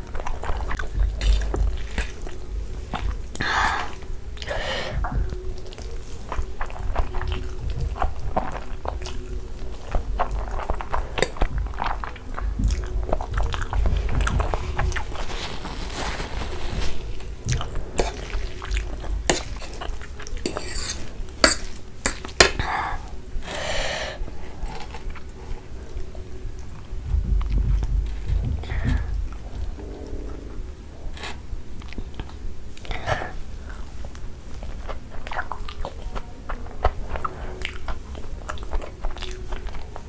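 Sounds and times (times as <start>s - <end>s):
wet chewing and slurping: 0.0s - 23.5s, 27.4s - 40.0s.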